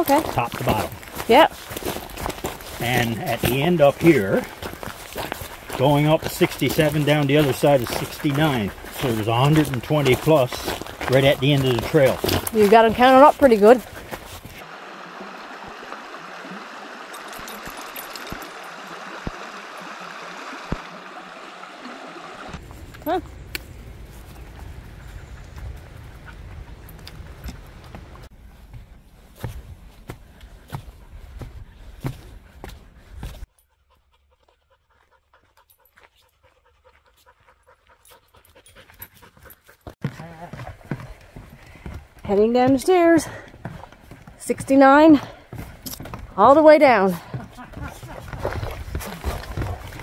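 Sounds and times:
dog panting rapidly: 0:03.0 - 0:14.6, 0:33.6 - 0:42.0, 0:47.1 - 0:50.0
river water over stones: 0:13.1 - 0:22.6.

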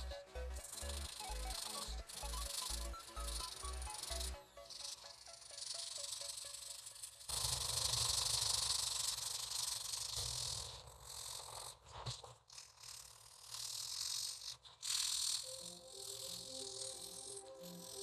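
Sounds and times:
soft music with held notes: 0:00.0 - 0:07.0, 0:15.5 - 0:18.0
pencil scratching on paper: 0:00.0 - 0:18.0.

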